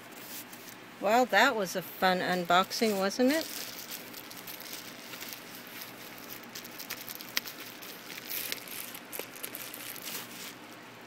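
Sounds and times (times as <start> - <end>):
packaging crackling and rustling: 2.4 - 10.9.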